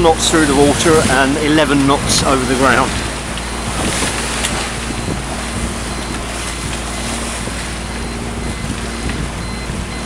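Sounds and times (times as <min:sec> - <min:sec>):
low engine hum: 0:00.0 - 0:10.0
water along a boat hull: 0:00.0 - 0:10.0
wind on microphone: 0:00.0 - 0:10.0.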